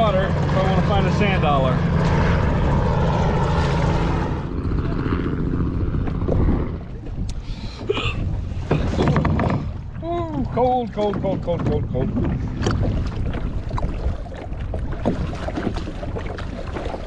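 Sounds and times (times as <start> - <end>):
engine drone: 0.0 - 10.3
wind on microphone: 0.0 - 17.0
knocks and water splashes: 5.8 - 17.0.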